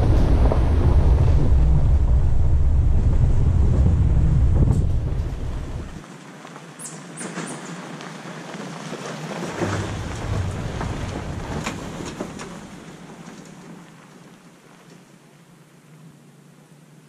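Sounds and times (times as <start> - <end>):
truck towing trailer on gravel: 3.5 - 15.2.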